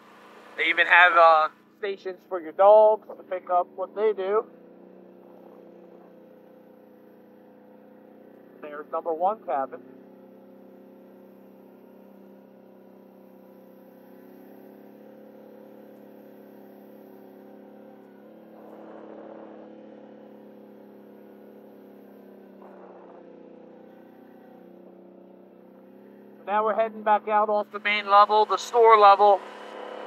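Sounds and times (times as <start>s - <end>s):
atv engine running: 0.0s - 30.0s.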